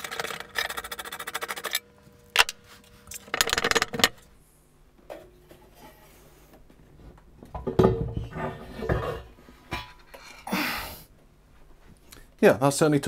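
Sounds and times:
metal parts clattering and knocking: 0.0 - 1.8, 3.2 - 4.2.

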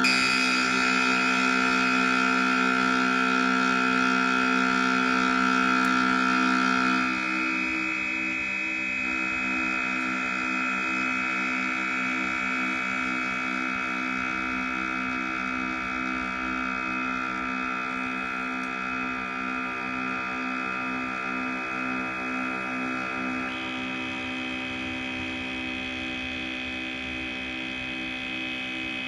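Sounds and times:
synthesizer drone: 0.0 - 13.9.

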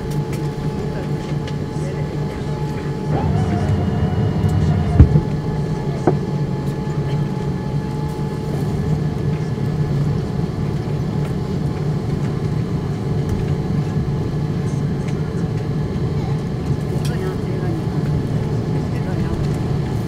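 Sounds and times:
jet engines idling drone: 2.3 - 9.4.

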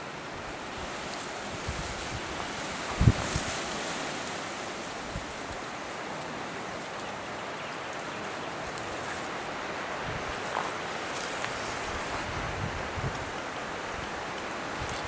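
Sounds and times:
wind hissing: 0.0 - 7.3
rustling brush: 0.8 - 15.0.

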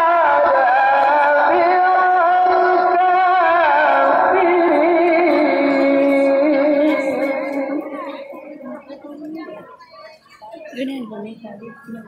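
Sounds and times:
person singing slow ornamented melody: 0.0 - 8.8.

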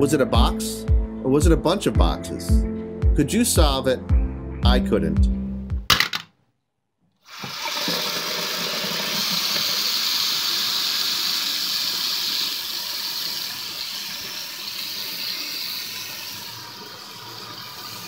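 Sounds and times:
faucet water splashing: 7.3 - 18.0.

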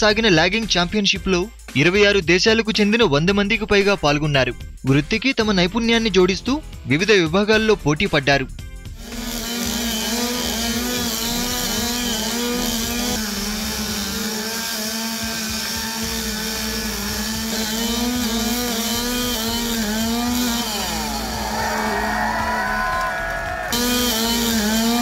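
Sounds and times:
chainsaw cutting wood: 8.8 - 25.0
second engine: 8.9 - 25.0.

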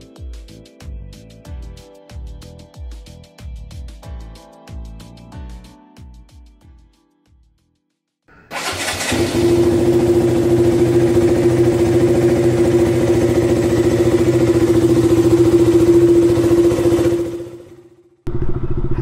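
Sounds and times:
vehicle engine starting and running: 8.3 - 19.0.

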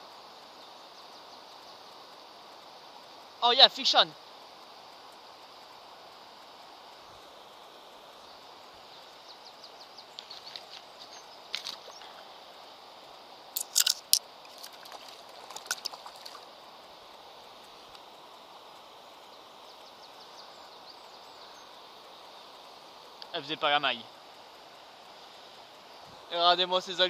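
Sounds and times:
fish splashing in water: 13.6 - 16.5.

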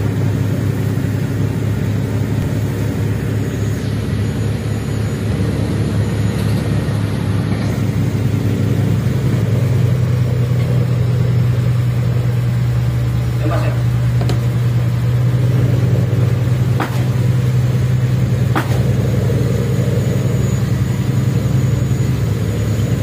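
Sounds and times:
wind and spray hissing: 0.0 - 4.2
boat engines droning: 0.0 - 23.0.

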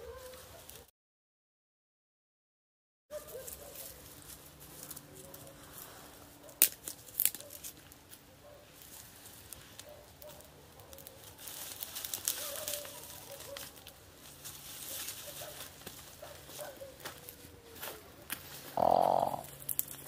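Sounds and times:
campfire crackling: 6.6 - 8.2, 8.8 - 16.3, 18.3 - 20.0.

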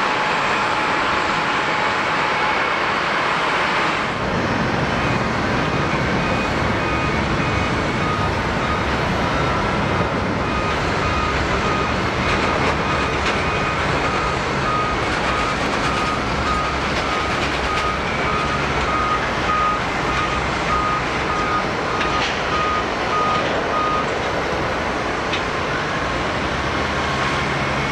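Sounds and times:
jet engine noise: 0.0 - 27.9
reversing alarm beeping: 5.0 - 24.1.

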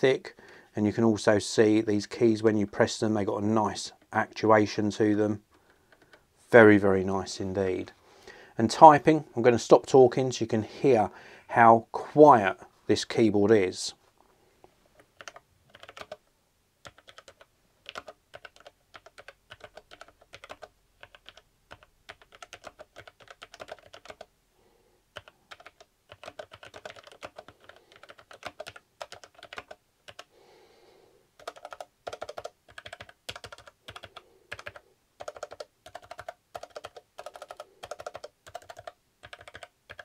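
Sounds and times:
keyboard typing dampened clicks: 15.2 - 16.2, 16.8 - 24.3, 25.2 - 30.3, 31.4 - 40.0.

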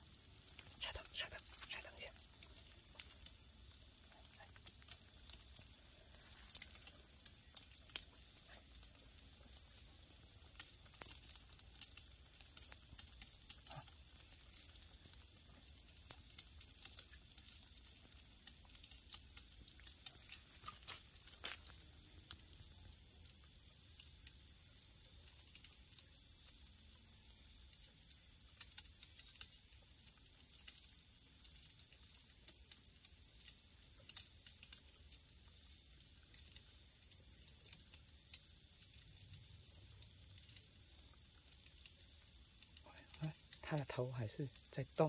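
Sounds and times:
crickets trilling: 0.0 - 45.0
faint clicks: 4.0 - 9.6.

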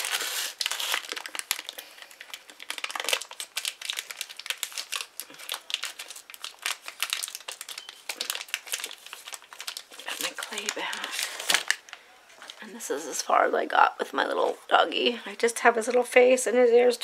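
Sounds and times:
plastic bag crinkling: 0.0 - 12.9.

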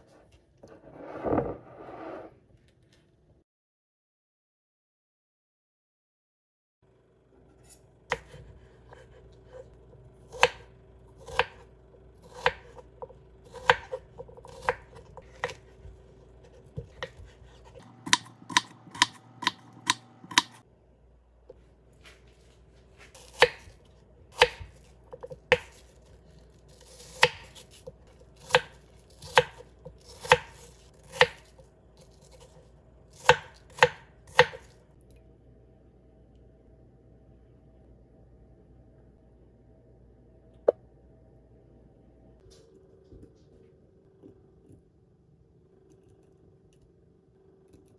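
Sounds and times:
knife chopping on wooden board: 10.3 - 10.6, 11.2 - 11.6, 12.2 - 12.8, 13.5 - 15.8, 16.4 - 20.6, 23.2 - 23.8, 24.4 - 26.0, 26.8 - 32.5, 33.1 - 34.7.

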